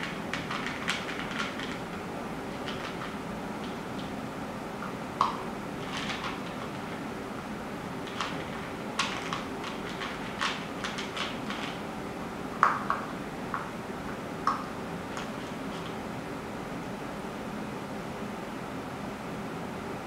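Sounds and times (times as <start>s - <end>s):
puppy crunching kibble from a bowl: 2.6s - 3.2s, 8.1s - 11.8s.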